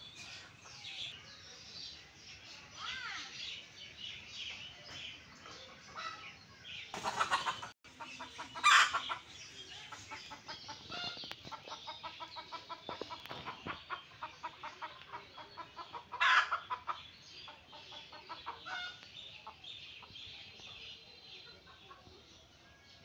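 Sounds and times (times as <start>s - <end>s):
junglefowl clucking: 7.0s - 19.6s.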